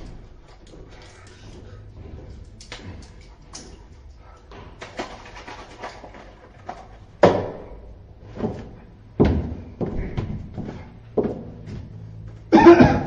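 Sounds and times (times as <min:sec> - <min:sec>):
knocks and thuds: 0:08.3 - 0:11.9.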